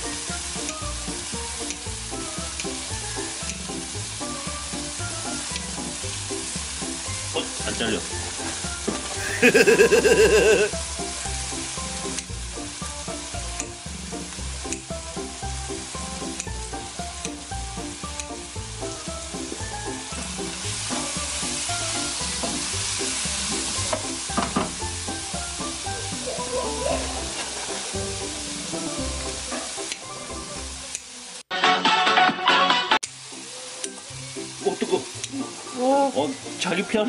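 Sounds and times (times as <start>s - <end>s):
meat sizzling in a frying pan: 0.0s - 31.4s, 33.0s - 37.0s
utensil clicking against pan: 1.6s - 1.9s, 2.5s - 2.8s, 3.4s - 3.8s, 12.0s - 12.3s, 14.6s - 14.9s, 16.1s - 16.6s, 18.1s - 18.4s.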